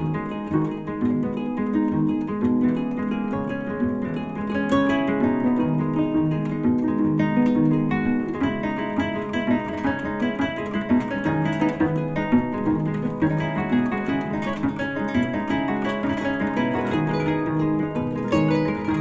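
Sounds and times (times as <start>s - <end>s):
plucked string music: 0.0s - 19.0s.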